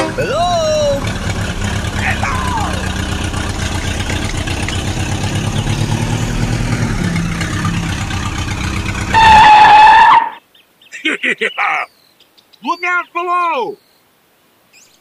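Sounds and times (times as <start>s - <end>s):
toy tractor engine sound: 0.0s - 8.4s
toy horn honk: 9.1s - 10.4s.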